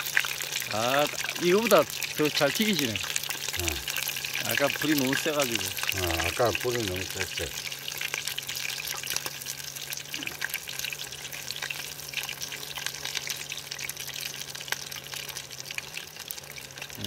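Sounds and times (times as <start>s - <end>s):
oil sizzling and crackling: 0.0s - 17.0s
steady low hum: 3.0s - 3.9s.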